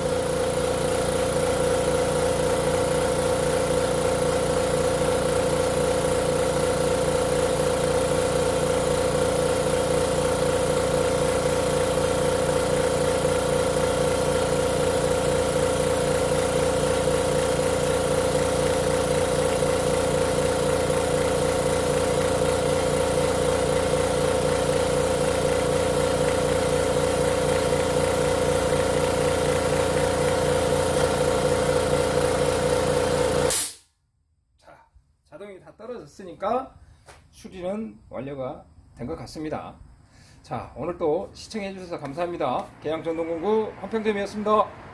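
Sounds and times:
air compressor running: 0:00.0 - 0:33.9.

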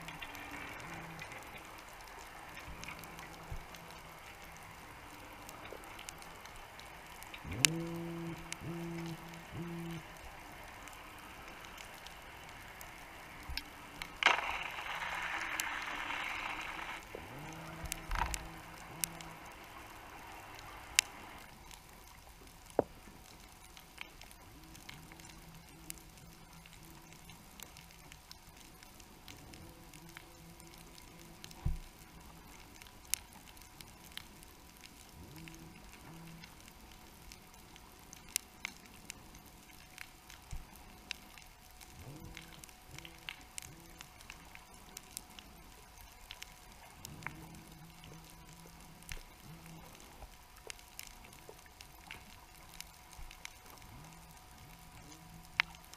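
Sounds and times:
low hum: 0:00.0 - 0:55.9
underwater clicks and ticks: 0:00.0 - 0:55.9
hiss: 0:10.9 - 0:17.0.

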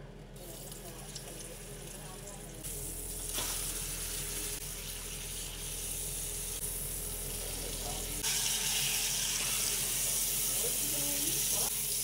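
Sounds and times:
meat sizzling in hot oil: 0:02.7 - 0:12.0.

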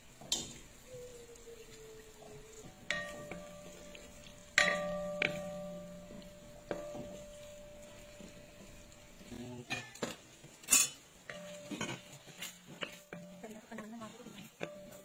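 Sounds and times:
food simmering: 0:00.0 - 0:15.0
metal spatula knocking on pan: 0:02.7 - 0:10.2.

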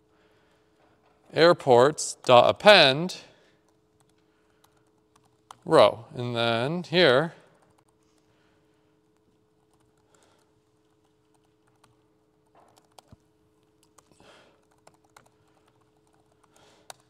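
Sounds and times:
faint laptop keyboard typing: 0:03.4 - 0:05.7, 0:07.4 - 0:17.0.

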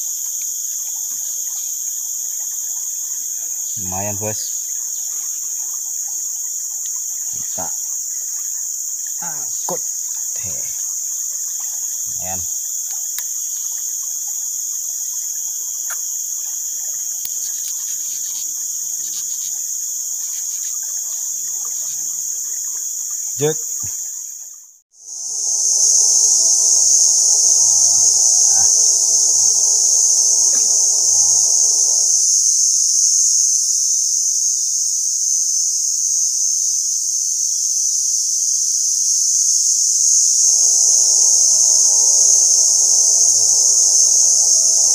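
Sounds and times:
insect chorus drone: 0:00.0 - 0:44.9
faint tune: 0:40.4 - 0:44.9.

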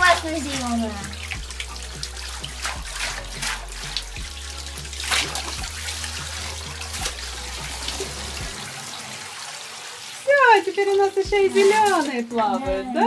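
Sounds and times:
balloons splashing into water: 0:00.0 - 0:08.8, 0:10.8 - 0:12.5
water trickling and splashing: 0:00.0 - 0:13.0.

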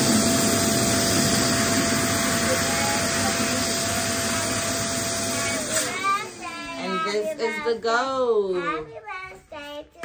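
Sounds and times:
balloon pump motor whine: 0:00.0 - 0:07.8.

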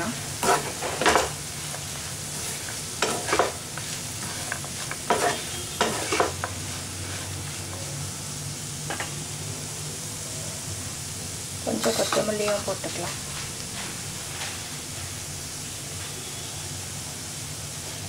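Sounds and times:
vegetables sizzling in a pan: 0:00.0 - 0:18.0
spoon scraping a pan: 0:00.4 - 0:07.6, 0:11.8 - 0:12.7.

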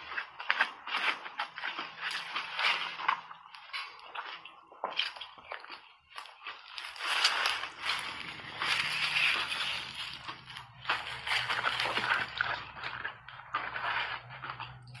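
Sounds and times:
ice being chewed: 0:00.0 - 0:15.0
spoon scraping ice: 0:06.8 - 0:15.0.

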